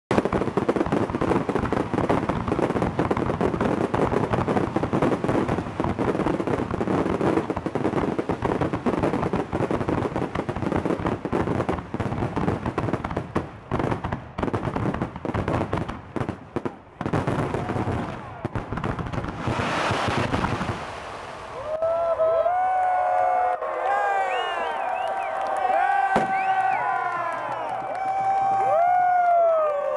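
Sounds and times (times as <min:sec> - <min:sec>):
fireworks bangs and crackles: 0:00.1 - 0:21.9, 0:24.8 - 0:29.9
rushing hiss: 0:19.4 - 0:21.6.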